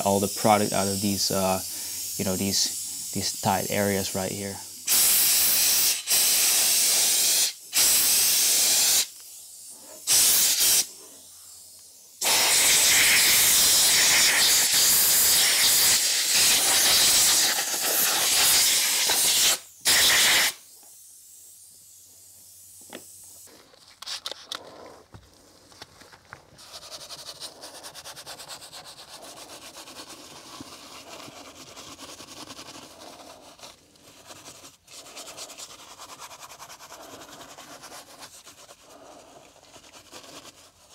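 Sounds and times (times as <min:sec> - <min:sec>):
air blow gun hissing: 0:00.0 - 0:23.5.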